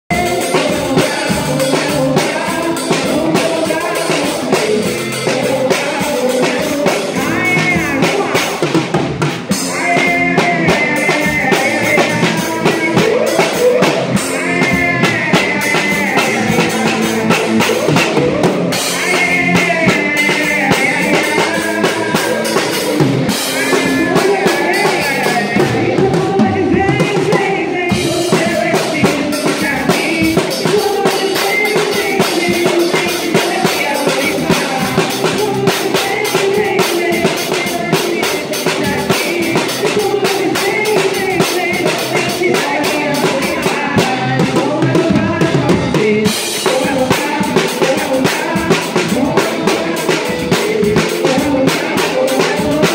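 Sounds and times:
drum kit beat: 0:00.0 - 0:52.9
live band playing: 0:00.1 - 0:52.9
person singing: 0:00.1 - 0:52.9.

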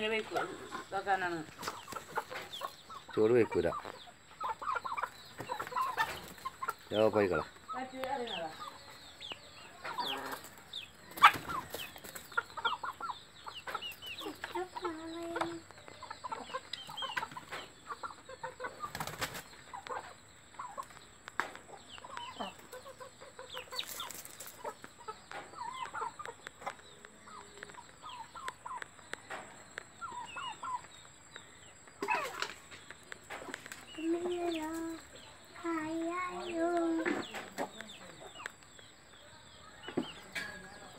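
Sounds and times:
chickens clucking: 0:00.0 - 0:40.9.

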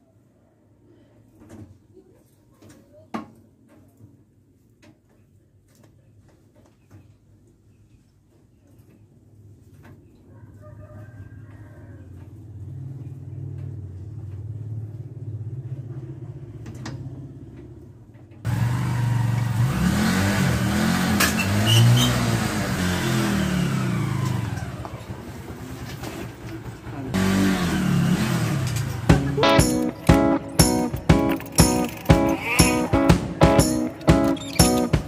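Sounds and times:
motorcycle engine revving: 0:18.5 - 0:25.3, 0:27.2 - 0:29.4.

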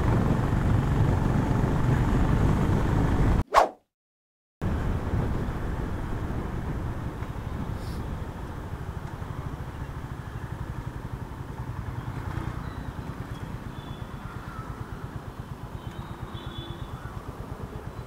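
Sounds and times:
road noise: 0:00.0 - 0:03.4, 0:04.6 - 0:18.0
motorcycle engine running: 0:06.3 - 0:18.0.

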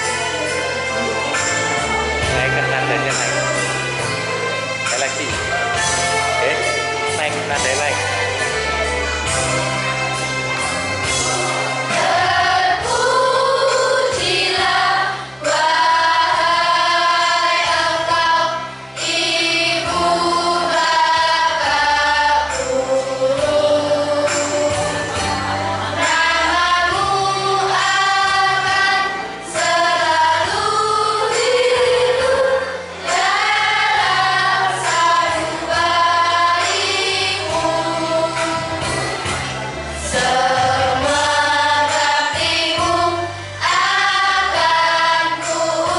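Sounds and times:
low accompaniment notes: 0:00.0 - 0:13.1
children's choir singing: 0:00.0 - 0:45.9.

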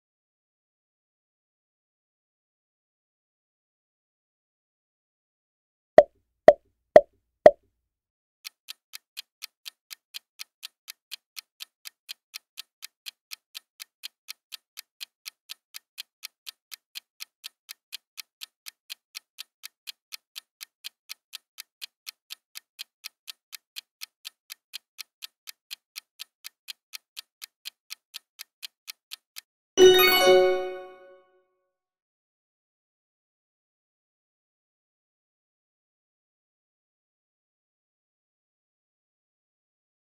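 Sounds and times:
timer clock ticking: 0:08.4 - 0:31.1
bell-like chime: 0:29.8 - 0:31.2.

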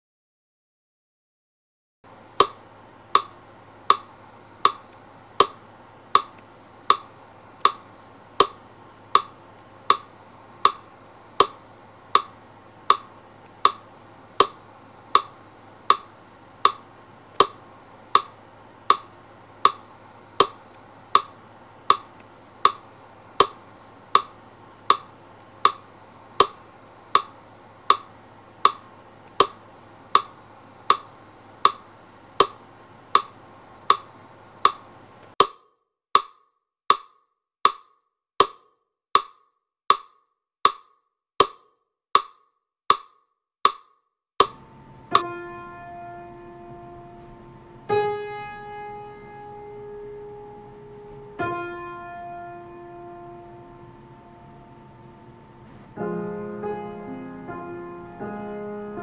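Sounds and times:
sharp even ticks: 0:02.4 - 0:07.8, 0:08.4 - 0:22.8, 0:26.4 - 0:27.3, 0:27.9 - 0:30.3
faint low hum: 0:44.4 - 0:59.0.

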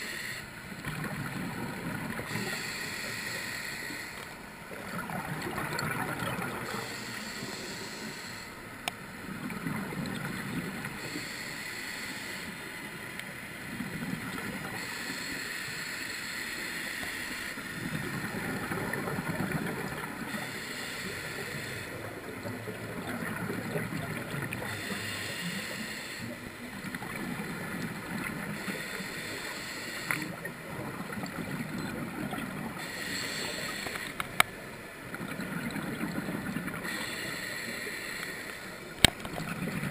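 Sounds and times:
regulator hissing inhale: 0:00.0 - 0:00.6, 0:02.2 - 0:04.4, 0:06.6 - 0:08.8, 0:10.9 - 0:13.1, 0:14.7 - 0:17.8, 0:20.2 - 0:22.1, 0:24.6 - 0:26.5, 0:28.3 - 0:30.4, 0:32.7 - 0:34.2, 0:36.8 - 0:38.9.

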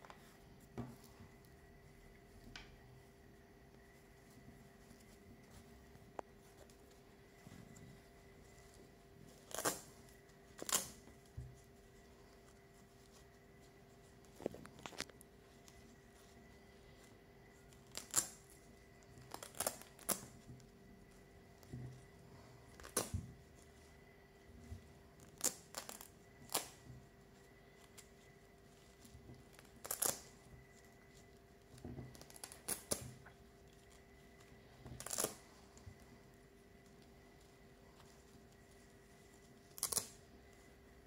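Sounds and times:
velcro ripping apart: 0:09.4 - 0:10.0, 0:10.6 - 0:11.0, 0:17.8 - 0:18.5, 0:19.3 - 0:20.3, 0:29.5 - 0:30.3, 0:32.2 - 0:33.1, 0:35.0 - 0:35.4, 0:39.7 - 0:40.2.

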